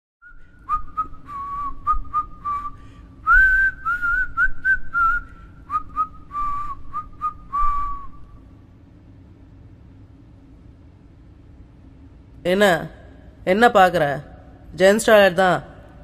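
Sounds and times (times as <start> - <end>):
person whistling a tune: 0.2 - 8.3.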